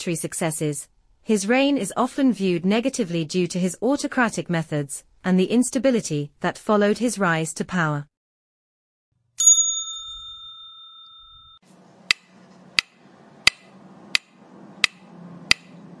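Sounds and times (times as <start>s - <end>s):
bell-like ding: 9.4s - 11.6s
sharp steady ticking: 12.1s - 15.8s.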